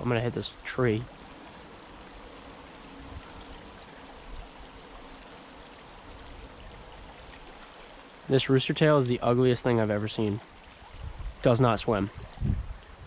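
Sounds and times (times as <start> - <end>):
river water rushing over riffles: 0.0 - 13.0.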